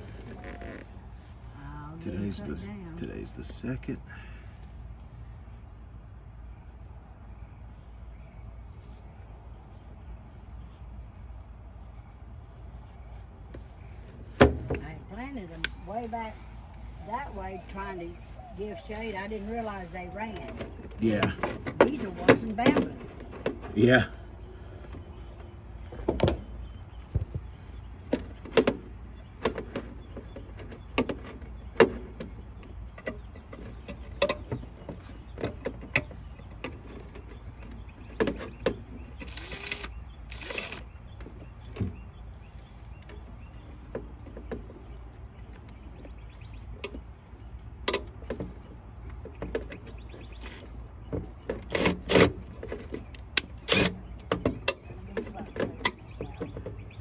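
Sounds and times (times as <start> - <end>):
cordless driver running: 38.5 - 40.9, 50.3 - 50.7, 53.6 - 54.1.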